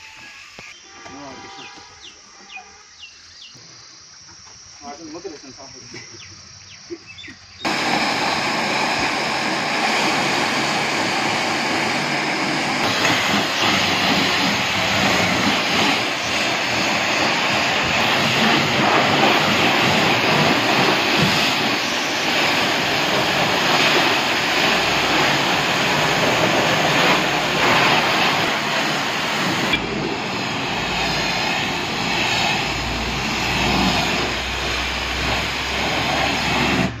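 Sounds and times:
pressure washer spraying water: 7.6s - 37.0s
low hum: 28.3s - 34.9s.

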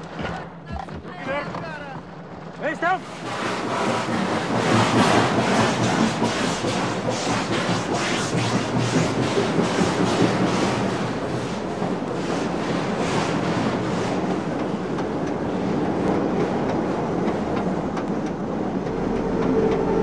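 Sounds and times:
steam locomotive hissing steam: 2.9s - 17.3s.

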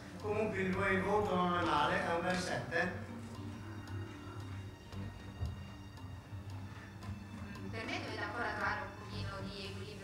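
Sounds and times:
music with low sustained notes: 0.0s - 10.0s.

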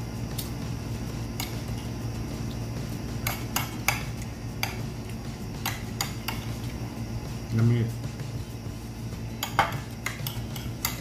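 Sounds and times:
steady low hum: 0.0s - 11.0s
metal spoon clinking against bowl: 9.4s - 11.0s.

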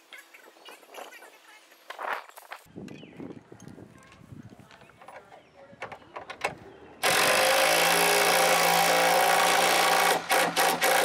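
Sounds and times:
drill boring through wood: 7.0s - 11.0s.

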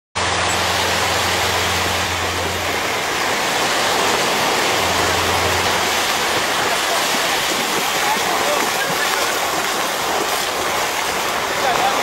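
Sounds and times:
low hum: 0.2s - 8.0s
surf on beach: 0.2s - 12.0s
wind: 0.2s - 12.0s.

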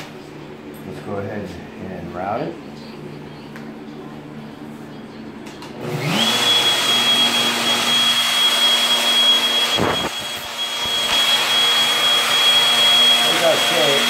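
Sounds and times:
wood router whining: 5.8s - 14.0s.

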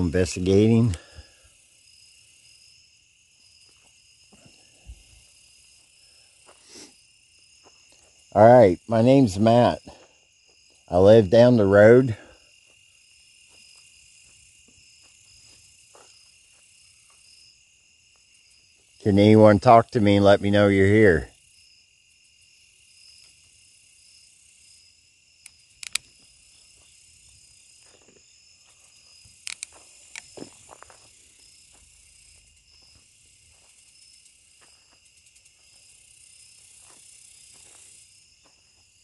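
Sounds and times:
crickets chirping: 0.0s - 39.0s
sharp clicks: 25.4s - 26.1s, 29.4s - 30.3s.

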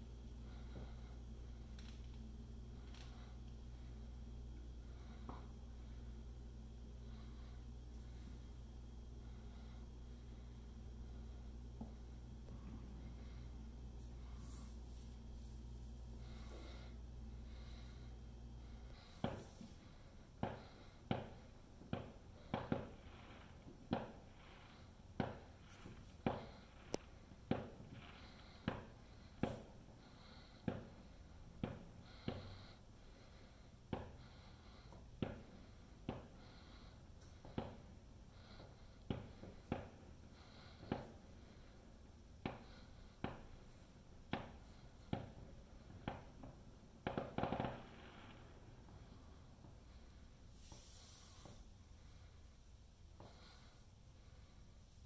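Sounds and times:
distant fireworks bangs: 18.9s - 36.8s, 37.4s - 41.7s, 42.4s - 50.0s
crackling firework pops: 20.4s - 24.4s, 47.0s - 48.6s
distant firework bangs: 20.4s - 29.8s, 44.3s - 49.2s.

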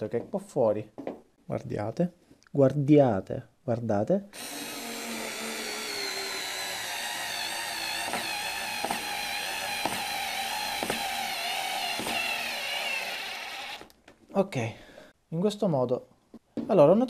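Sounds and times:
cordless screwdriver motor whine: 4.4s - 13.9s.

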